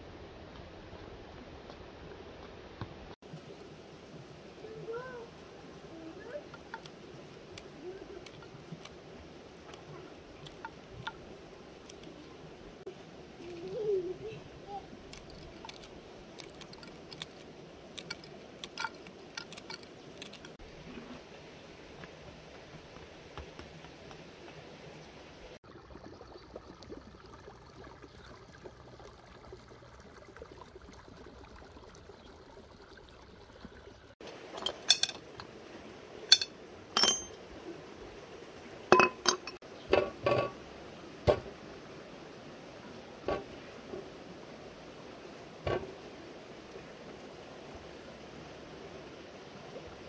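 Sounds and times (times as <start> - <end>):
cookware and dishes clinking: 34.6 - 35.2, 36.3 - 37.4, 38.9 - 40.6.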